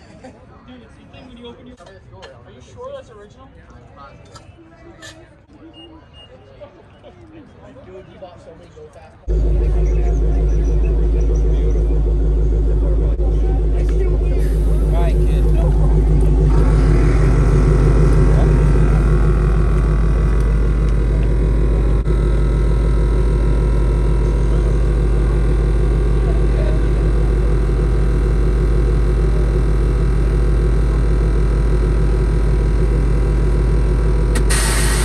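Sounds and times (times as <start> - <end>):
car engine idling: 9.2 - 35.0.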